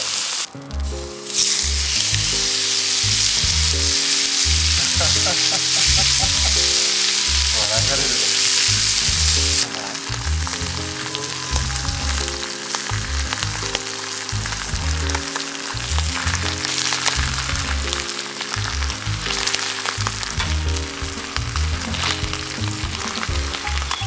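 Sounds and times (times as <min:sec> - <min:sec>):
steak sizzling and spitting: 0:00.0 - 0:24.0
background music with bass: 0:00.6 - 0:24.0.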